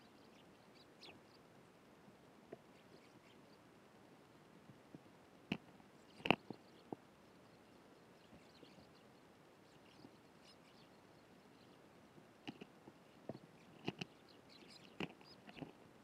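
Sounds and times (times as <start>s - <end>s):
faint high bird chirps: 6.0s - 11.8s, 12.5s - 15.7s.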